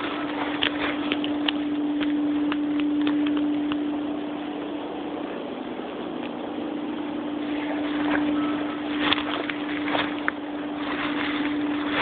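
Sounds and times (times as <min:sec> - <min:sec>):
twigs snapping: 0:00.0 - 0:04.1, 0:07.4 - 0:12.0
footsteps through dry grass: 0:00.0 - 0:12.0
steady low hum: 0:00.0 - 0:12.0.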